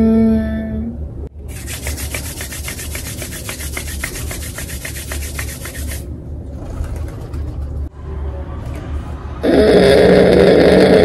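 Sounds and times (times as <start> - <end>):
palms rubbing together: 1.5 - 6.1.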